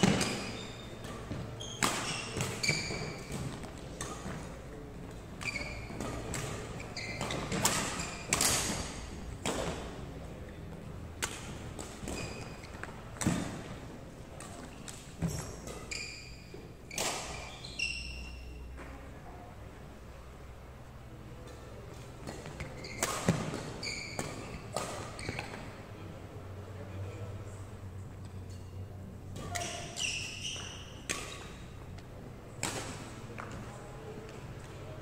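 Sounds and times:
shoes squeaking on wooden floor: 0:00.0 - 0:04.5, 0:05.2 - 0:09.1, 0:12.0 - 0:13.0, 0:14.7 - 0:18.4, 0:22.5 - 0:25.6, 0:29.5 - 0:31.4
racket striking shuttlecock: 0:05.4 - 0:09.9.

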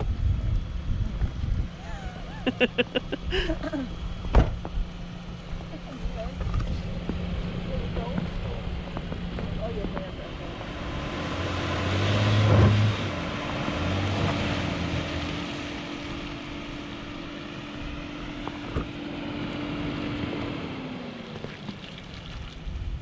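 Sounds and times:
van engine revving: 0:00.0 - 0:21.7
tyres through slushy mud: 0:21.1 - 0:23.0.

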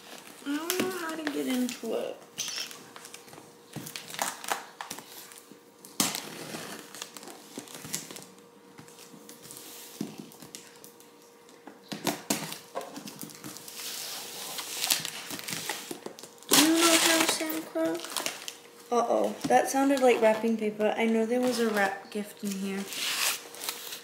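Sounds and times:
tape crinkling: 0:00.0 - 0:11.2, 0:12.0 - 0:18.8, 0:21.1 - 0:24.0
tape tearing: 0:03.8 - 0:08.3, 0:12.0 - 0:18.6, 0:21.4 - 0:24.0.

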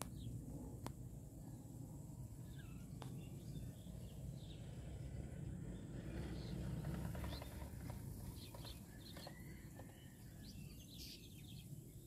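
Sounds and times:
bird chirps and calls: 0:05.8 - 0:12.0.

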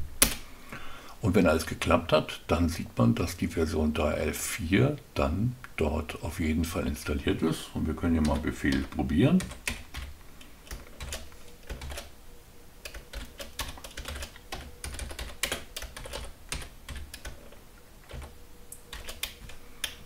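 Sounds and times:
keyboard typing: 0:08.1 - 0:12.1, 0:12.8 - 0:20.0.

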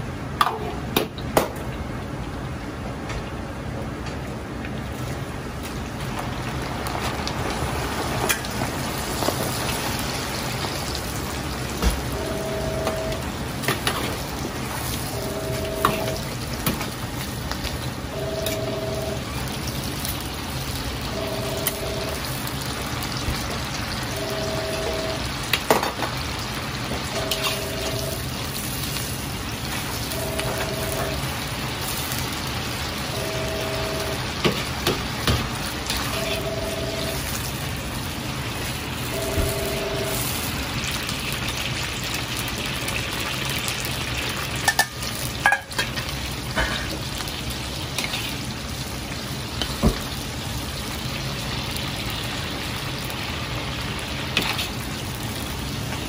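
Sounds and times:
two-note electronic beep: 0:12.2 - 0:13.2, 0:15.2 - 0:16.3, 0:18.2 - 0:19.2, 0:21.2 - 0:22.2, 0:24.1 - 0:25.2, 0:27.2 - 0:28.2, 0:30.1 - 0:31.2, 0:33.2 - 0:34.2, 0:36.1 - 0:37.2, 0:39.1 - 0:40.2
liquid bubbling in a wok: 0:40.3 - 0:56.0.

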